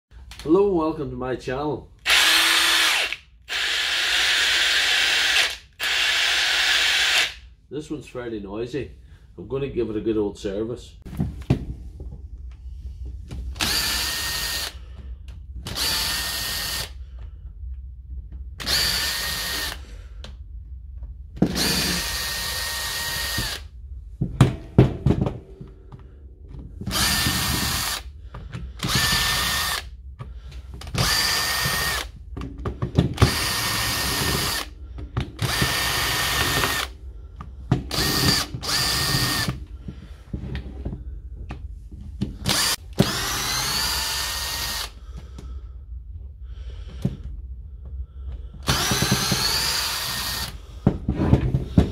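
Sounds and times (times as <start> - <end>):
cordless drill motor whine: 2.1 - 7.4, 13.6 - 14.8, 15.7 - 17.0, 18.6 - 19.8, 21.5 - 23.7, 26.9 - 28.1, 28.8 - 29.9, 30.9 - 32.1, 33.2 - 34.7, 35.4 - 36.9, 37.9 - 39.6, 42.4 - 45.0, 48.6 - 50.6.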